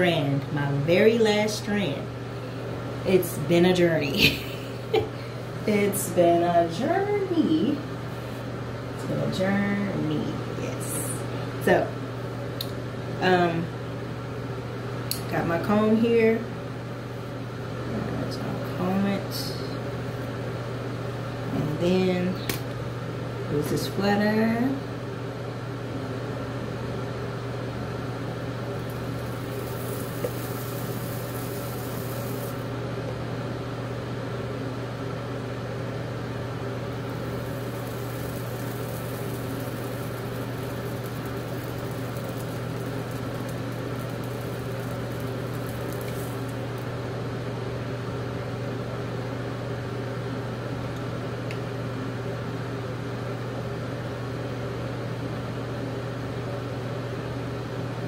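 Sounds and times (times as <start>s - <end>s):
small motor humming: 28.8s - 32.7s, 37.0s - 46.9s
faint high hiss: 28.9s - 32.6s, 37.1s - 46.6s.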